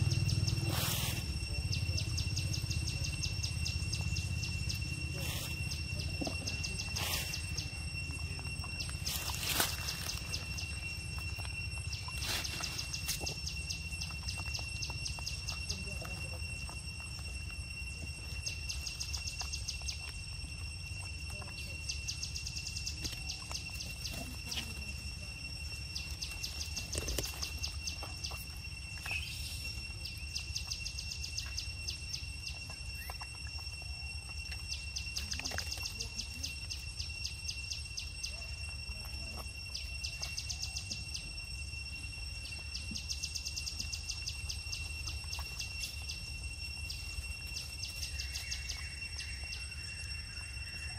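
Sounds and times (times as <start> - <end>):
low steady rumble: 0.0 - 35.2
high-pitched insect drone: 0.0 - 50.9
rapid chirping pulses: 0.0 - 50.9.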